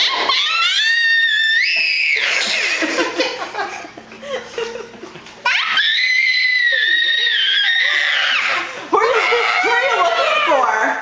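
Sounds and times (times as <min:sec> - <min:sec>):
toddler squealing: 0:00.0 - 0:02.8, 0:05.4 - 0:10.9
toddler giggling: 0:02.2 - 0:04.9.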